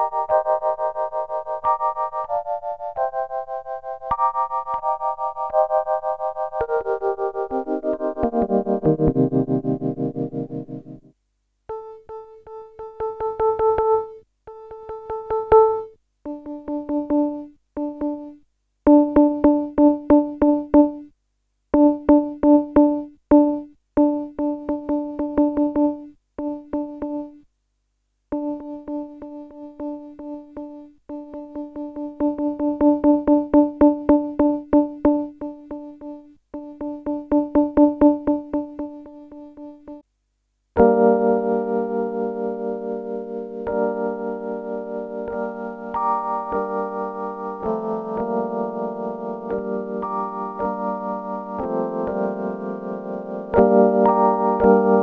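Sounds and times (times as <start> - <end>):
synthesizer chord: 0.0 - 11.1, 40.8 - 55.0.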